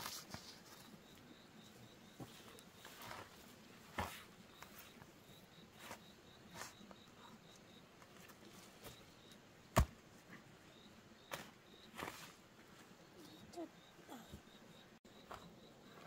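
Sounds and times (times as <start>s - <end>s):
hoe chopping dry soil: 9.7s - 10.0s
faint high chirp: 13.0s - 16.0s.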